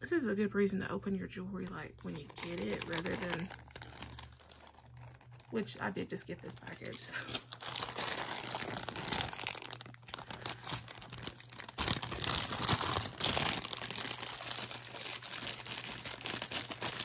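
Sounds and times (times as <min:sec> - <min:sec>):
plastic bags crinkling: 0:01.8 - 0:17.0.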